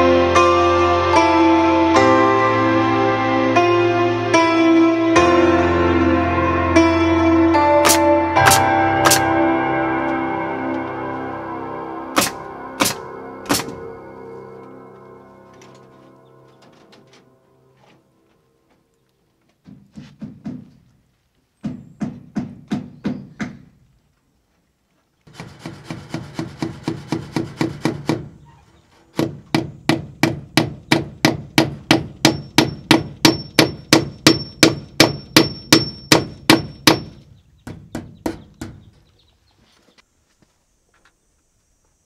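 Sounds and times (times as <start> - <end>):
hammer driving nails: 7.8 - 9.3, 12.2 - 13.8, 25.3 - 28.4, 29.1 - 38.9
high metallic ring: 32.3 - 37.0.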